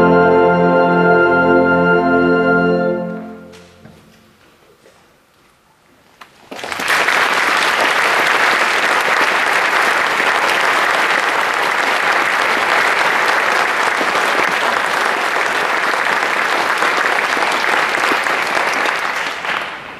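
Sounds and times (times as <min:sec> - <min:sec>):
concert band music: 0:00.0 - 0:04.4
audience clapping: 0:06.3 - 0:19.9.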